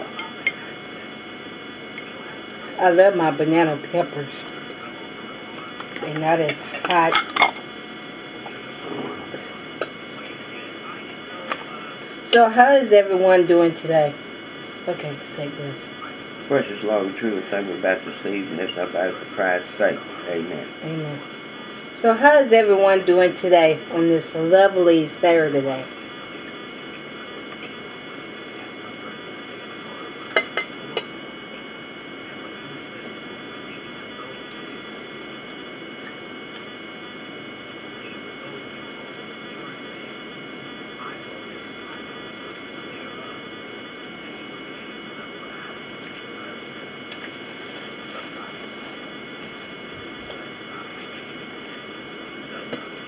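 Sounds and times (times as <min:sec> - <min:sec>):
room hum: 0:00.0 - 0:53.0.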